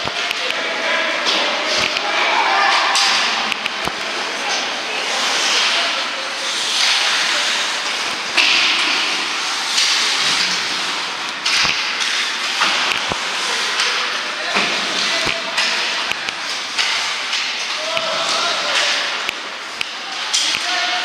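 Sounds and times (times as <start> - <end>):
sticks striking puck: 1.3 - 2.1, 14.6 - 20.7.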